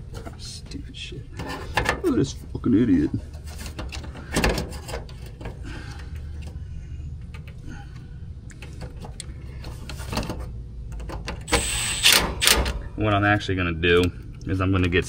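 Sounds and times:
steady low rumble: 0.0s - 11.5s, 12.2s - 15.0s
clicks of wires and metal parts: 1.4s - 2.1s, 3.3s - 6.6s, 7.2s - 12.9s.

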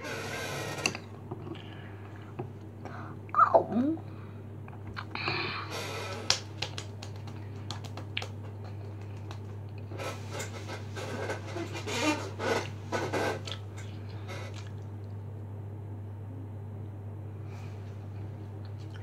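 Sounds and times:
low steady hum: 0.0s - 19.0s
sharp hand clap: 6.1s - 9.6s.

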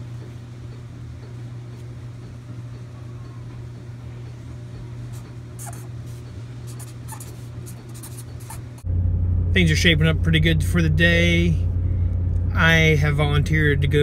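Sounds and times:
steady low hum: 0.0s - 14.0s
marker writing on paper: 5.1s - 8.8s.

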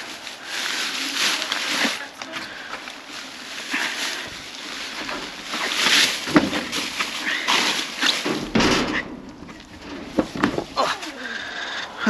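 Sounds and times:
trash bags rustling and crinkling: 0.0s - 12.0s
knocks and clunks in metal dumpster: 7.5s - 10.8s.

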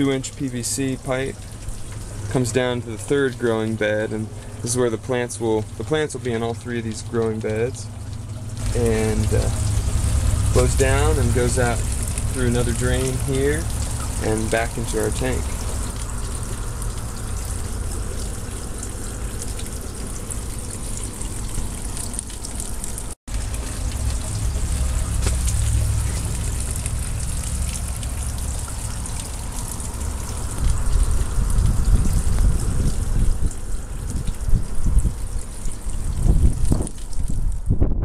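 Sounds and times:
water splashing into a tank: 0.0s - 38.0s
wind buffeting microphone: 30.4s - 38.0s.

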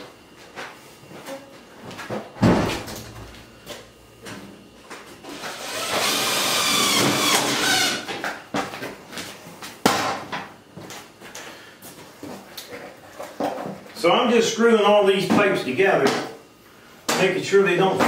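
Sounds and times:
cordless drill driving a screw: 5.4s - 8.0s.

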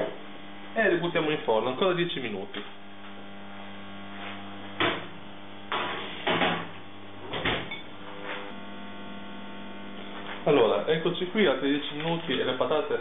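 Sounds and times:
electrical hum: 0.0s - 13.0s
oven door shutting: 5.8s - 8.5s.

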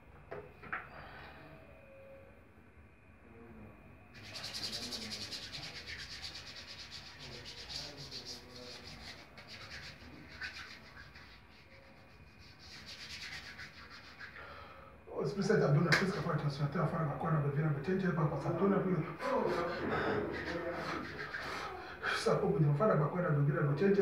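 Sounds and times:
hands rubbing together: 4.2s - 14.5s, 19.5s - 21.8s.

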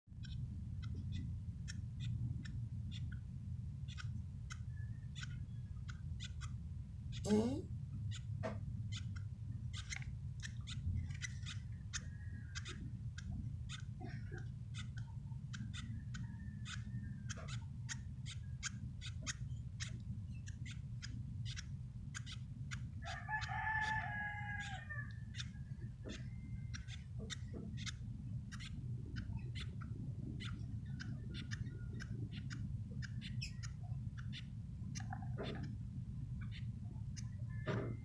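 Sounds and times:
steady low hum: 0.1s - 38.0s
chicks clicking and chirping: 0.2s - 38.0s.

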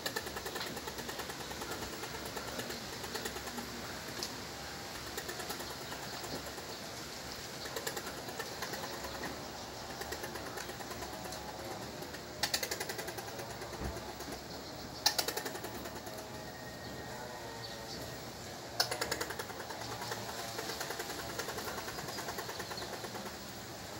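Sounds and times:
squirrel chattering: 0.0s - 16.8s, 18.7s - 23.6s.

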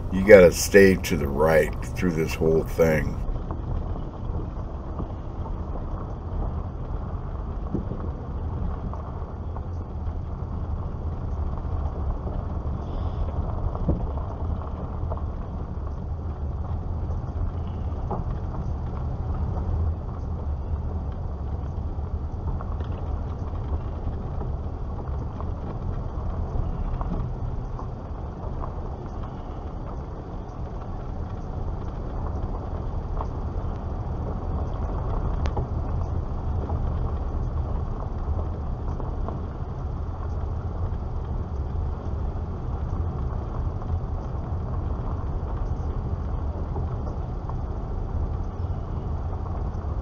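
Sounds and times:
car engine and road noise rumble: 0.0s - 3.2s.

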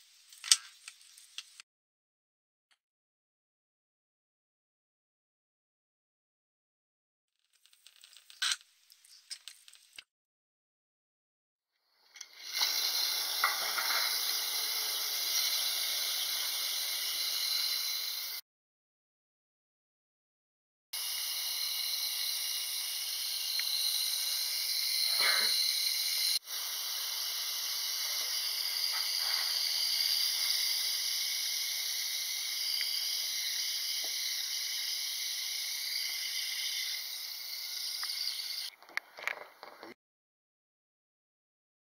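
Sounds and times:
steady hiss: 12.2s - 18.4s, 21.0s - 38.7s.

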